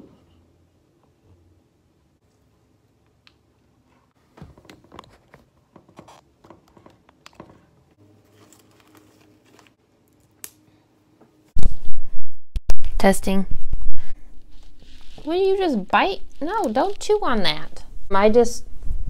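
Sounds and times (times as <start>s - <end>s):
microphone rustles and clicks: 13.6s - 15.4s.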